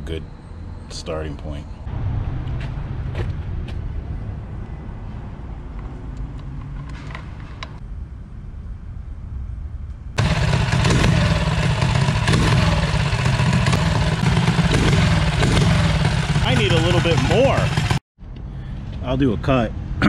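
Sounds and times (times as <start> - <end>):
engine revving under throttle: 10.2 - 18.0.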